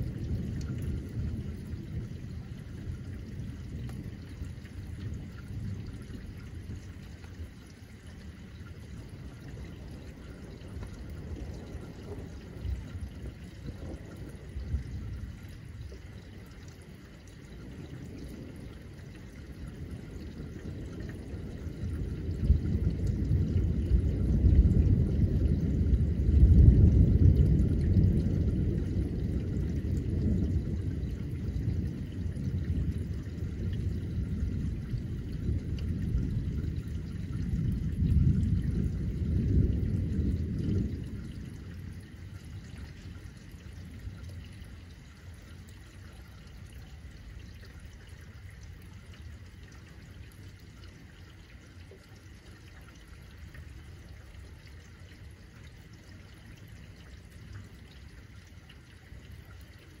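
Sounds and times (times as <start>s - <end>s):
thunder rumbling: 0.0s - 45.8s
steady rain: 0.0s - 60.0s.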